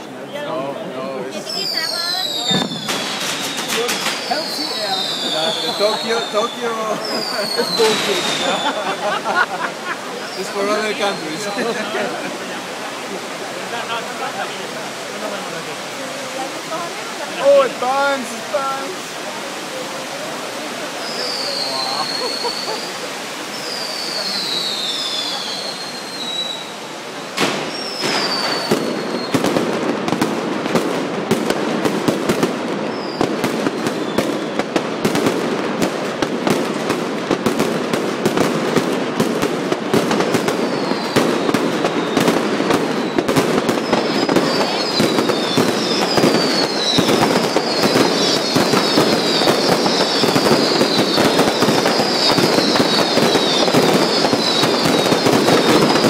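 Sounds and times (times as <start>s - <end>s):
firecrackers crackling: 1.2s - 56.0s
falling firework whistles: 1.4s - 12.0s, 20.8s - 30.9s, 31.9s - 35.3s, 38.3s - 56.0s
sharp firework bang: 2.4s - 6.1s, 27.4s - 56.0s.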